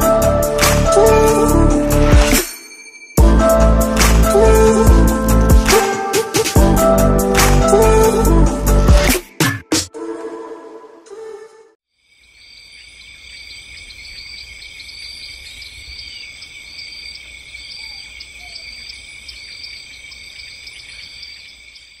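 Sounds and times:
crickets chirping: 12.0 - 22.0.

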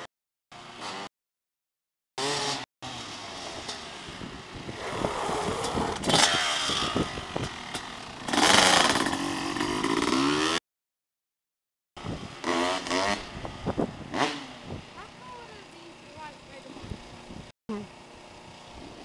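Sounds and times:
dirt bike engine revving: 2.2 - 10.6, 12.3 - 16.6.

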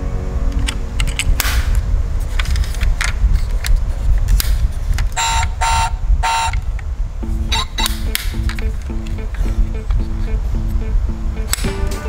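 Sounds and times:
clicks of toy being handled: 2.3 - 5.2
toy car horn toots: 5.2 - 6.6
low engine-like rumble: 5.9 - 11.5.

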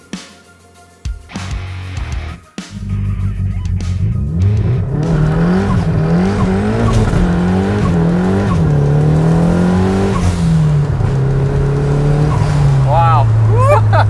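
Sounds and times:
tyre noise: 2.2 - 14.0
car engine revving hard: 3.8 - 14.0.

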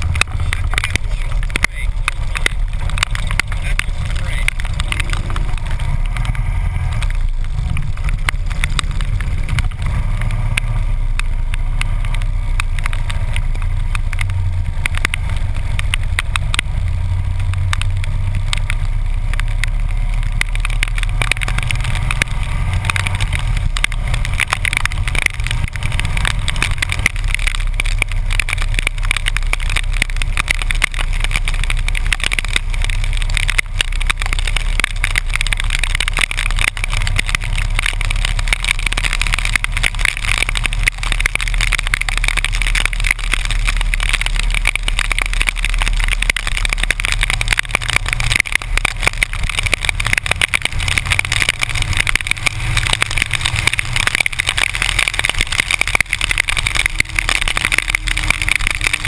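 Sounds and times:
motorcycle engine running: 0.0 - 59.0
tyres hissing on wet road: 0.0 - 59.0.

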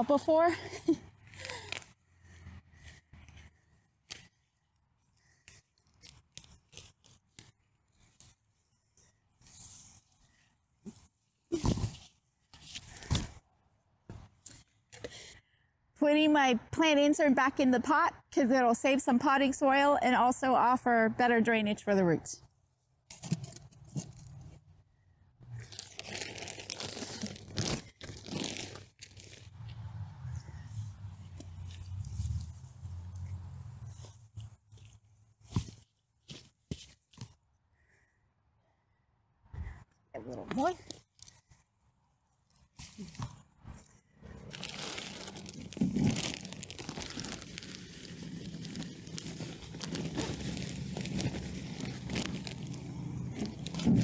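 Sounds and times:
roots snapping and crackling: 1.2 - 2.0, 25.6 - 29.9, 42.5 - 54.0
plastic bag crinkling: 25.6 - 29.5, 44.3 - 54.0.

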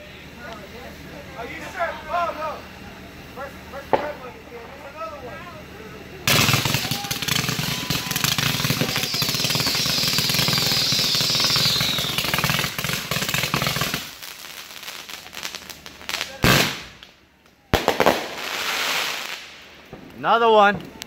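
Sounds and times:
firework fountain crackling: 0.0 - 21.0
high wavering whistle: 6.6 - 12.7.

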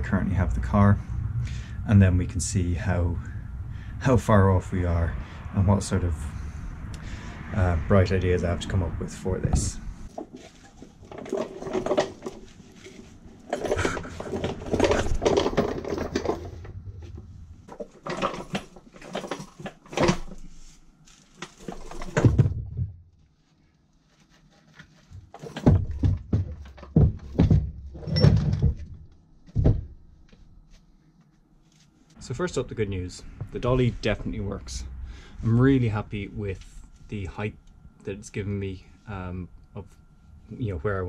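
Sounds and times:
low rumble: 0.0 - 10.2, 16.4 - 17.7, 32.2 - 37.0
heavy knocks and thuds: 22.0 - 23.0, 25.3 - 30.0.

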